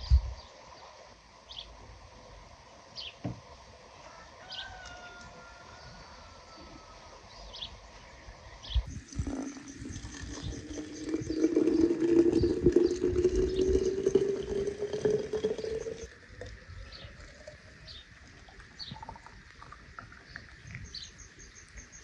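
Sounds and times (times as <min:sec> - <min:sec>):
water pouring into bottle: 0:08.9 - 0:21.8.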